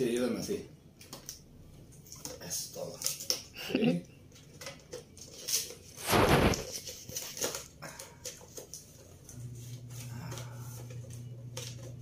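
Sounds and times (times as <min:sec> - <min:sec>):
low steady hum: 0:07.8 - 0:12.0.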